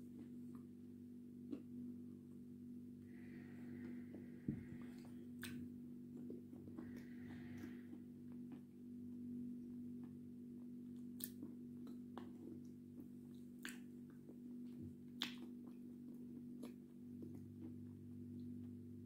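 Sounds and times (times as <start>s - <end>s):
low electrical hum: 0.0s - 19.0s
wet mouth clicks and smacks: 5.4s - 6.3s, 11.2s - 12.4s, 13.0s - 14.2s, 15.2s - 15.8s.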